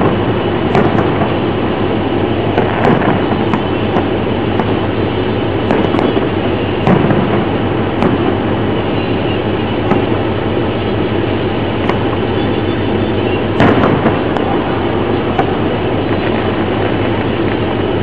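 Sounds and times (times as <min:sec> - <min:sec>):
firework bang: 0:00.0 - 0:18.0
fireworks popping: 0:00.0 - 0:18.0
loud background rumble: 0:00.0 - 0:18.0.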